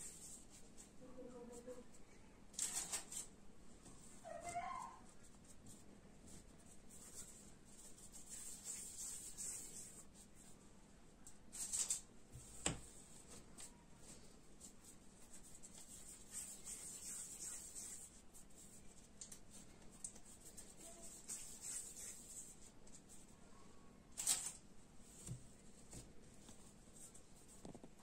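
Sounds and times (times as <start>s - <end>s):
hands rolling dough: 12.3s - 23.3s.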